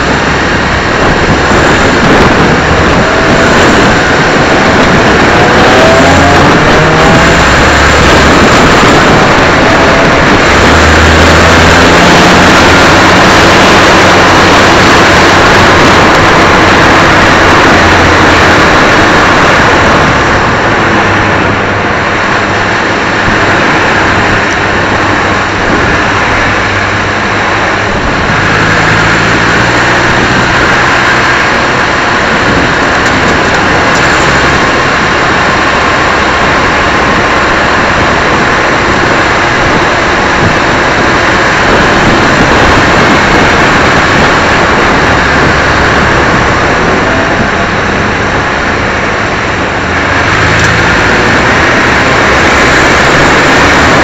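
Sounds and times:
race car engine running hard: 0:00.0 - 0:54.0
wind rush over microphone: 0:00.0 - 0:54.0.

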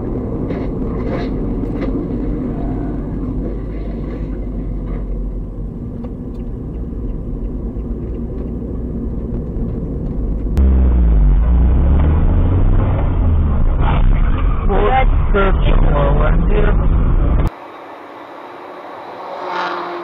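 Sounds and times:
car road noise rumble: 0:00.0 - 0:20.0
low pitch sweeping downward: 0:09.6 - 0:17.5.

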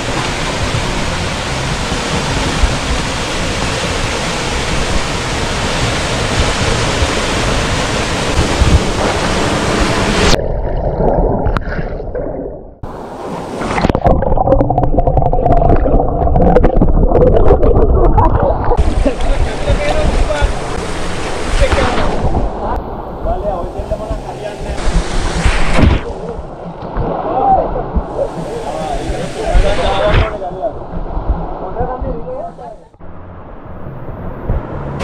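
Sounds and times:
waterfall rushing into pool: 0:00.0 - 0:10.4, 0:17.4 - 0:26.4, 0:27.0 - 0:30.7
underwater churning and bubbling: 0:00.0 - 0:32.4.

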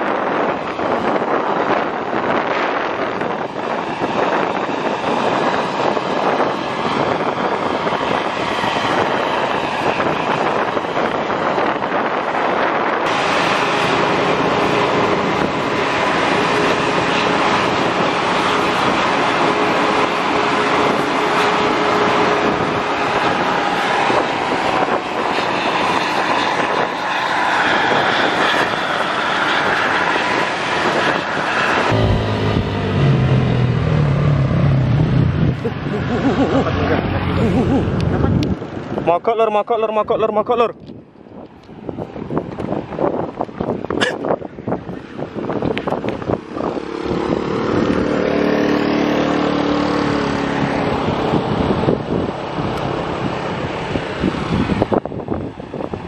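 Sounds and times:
bus diesel engine running: 0:13.1 - 0:24.8, 0:31.7 - 0:38.7.

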